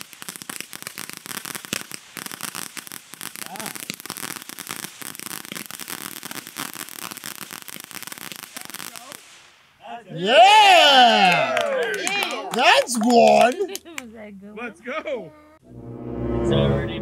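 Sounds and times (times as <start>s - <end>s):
fireworks crackling: 0.0s - 9.9s, 11.6s - 14.0s.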